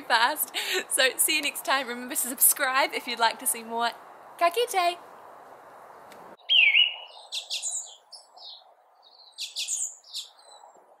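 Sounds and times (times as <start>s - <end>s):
songbirds chirping: 5.8s - 11.0s.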